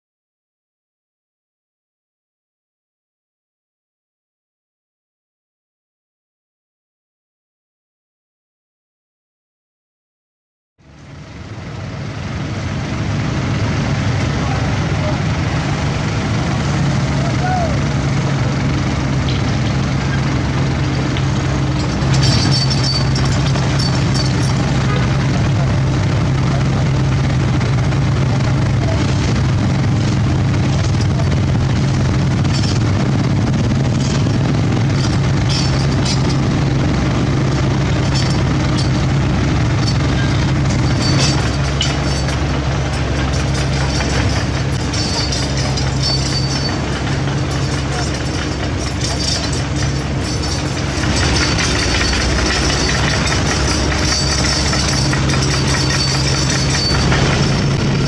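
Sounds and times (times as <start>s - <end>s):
diesel engines humming: 10.8s - 58.0s
excavator clatter: 12.6s - 58.0s.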